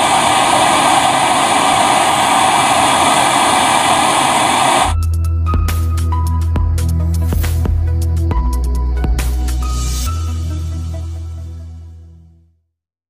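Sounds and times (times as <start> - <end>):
gas torch hissing: 0.0 - 5.0
music with deep bass: 4.9 - 12.2.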